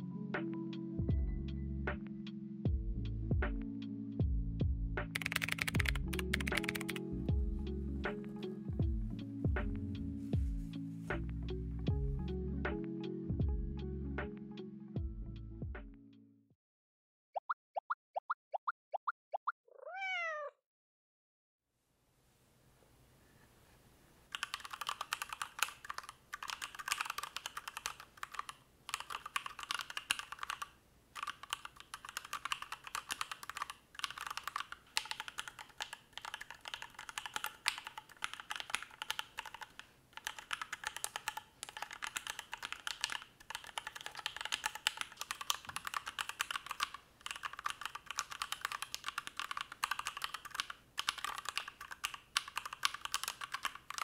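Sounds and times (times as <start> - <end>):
fast keyboard typing clacks: 5.1 - 7.0, 24.3 - 54.0.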